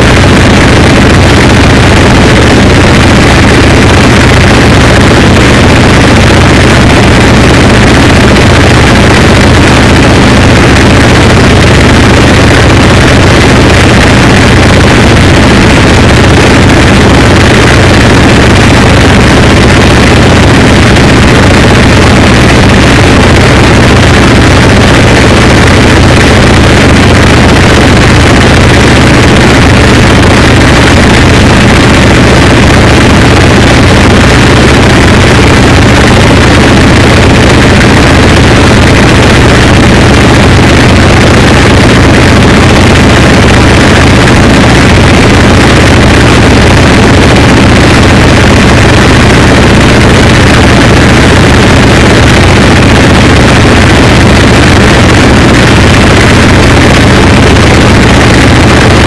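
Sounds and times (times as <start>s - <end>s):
harsh noise wall music: 0.0s - 50.2s
steady low hum: 0.0s - 50.2s.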